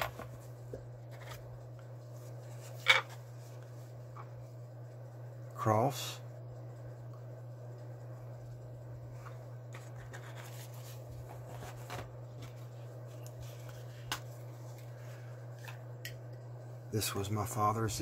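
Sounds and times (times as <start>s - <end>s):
steady low hum: 0.0s - 18.0s
hands rubbing and shuffling boxes: 9.1s - 15.0s.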